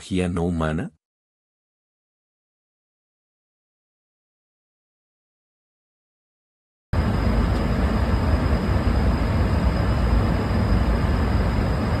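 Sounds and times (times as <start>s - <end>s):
airliner cabin noise: 7.0s - 12.0s.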